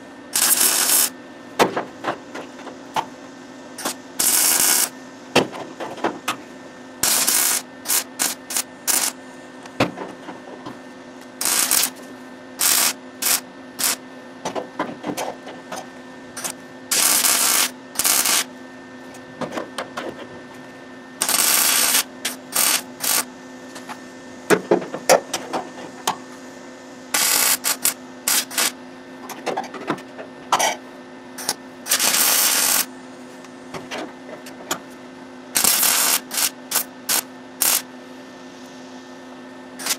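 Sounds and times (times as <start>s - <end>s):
steady hum: 0.0s - 39.9s
welder crackling sputter: 0.3s - 1.1s, 3.8s - 4.9s, 7.0s - 9.2s, 11.4s - 12.0s, 12.6s - 14.0s, 16.4s - 18.5s, 21.2s - 23.3s, 27.1s - 28.8s, 31.4s - 32.9s, 35.6s - 37.9s.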